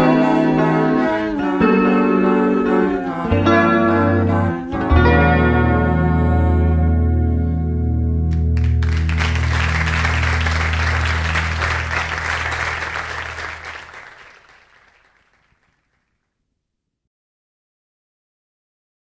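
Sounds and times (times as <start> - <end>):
audience applauding: 8.3 - 16.0.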